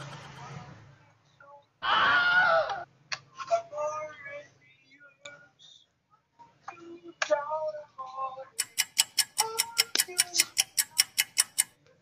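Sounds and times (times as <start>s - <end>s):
man singing: 6.7s - 8.6s, 9.3s - 10.6s
clock ticking: 8.6s - 11.8s.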